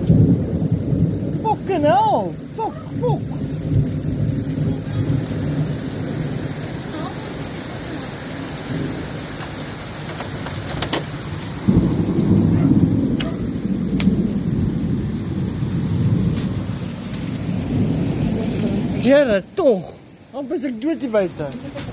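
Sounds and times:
thunder rumbling: 0.0 - 20.2
steady rain: 0.0 - 21.9.

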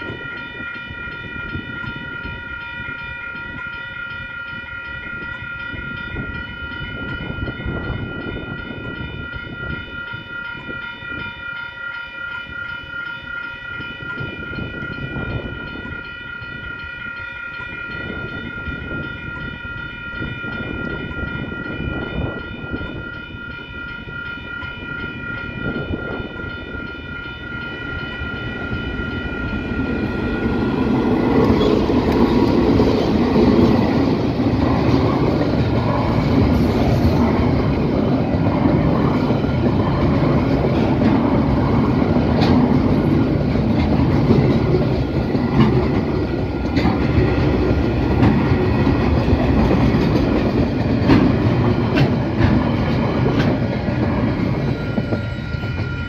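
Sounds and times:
freight train rumble: 0.0 - 56.0
level crossing bells ringing: 0.0 - 56.0
wheels clacking over rail joints: 29.4 - 56.0.

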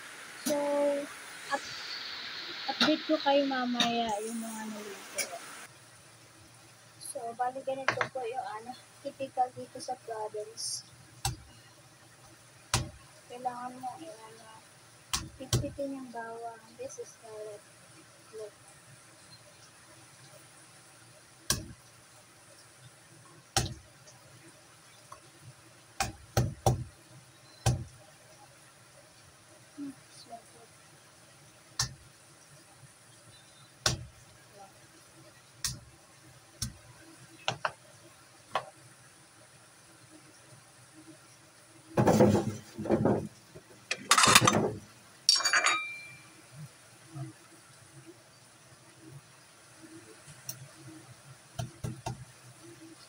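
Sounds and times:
dishes and utensils clattering: 43.9 - 46.3
sharp ringing clink: 45.3 - 46.4.

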